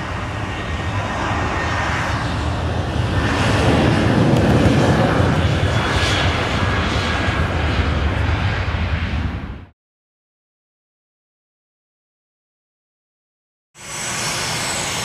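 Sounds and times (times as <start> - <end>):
steady low rumble: 0.0 - 9.7
jet engines at takeoff: 0.0 - 9.8, 13.8 - 15.0.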